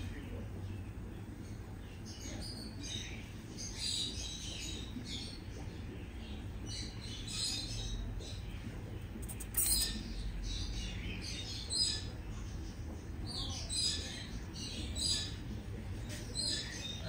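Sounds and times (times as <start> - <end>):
hamsters squeaking: 6.6 - 15.4, 16.1 - 17.0.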